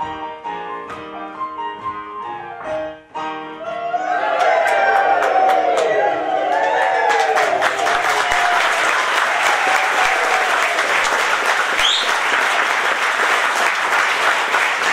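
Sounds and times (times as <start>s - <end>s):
audience applauding: 3.8s - 14.9s.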